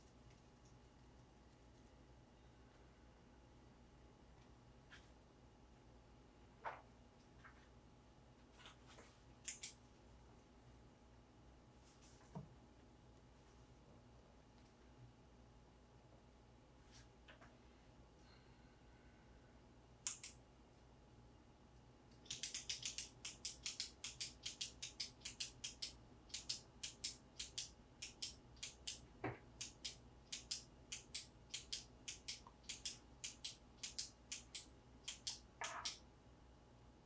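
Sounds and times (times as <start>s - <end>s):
retractable pen clicking: 22.2s - 29.0s.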